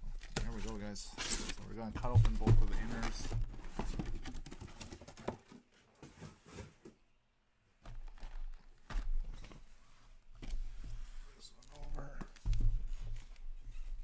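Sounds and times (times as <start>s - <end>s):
cardboard boxes knocking and scraping: 1.3s - 6.9s.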